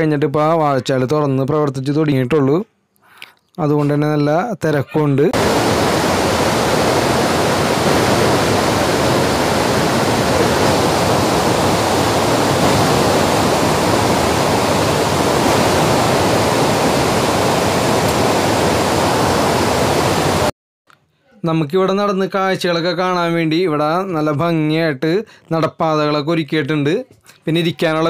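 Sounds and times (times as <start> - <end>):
waterfall rushing over rocks: 5.4 - 20.5.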